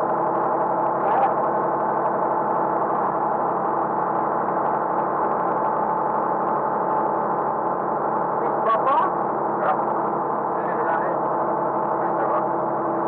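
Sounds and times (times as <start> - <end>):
diesel engine running steadily: 0.0 - 13.0.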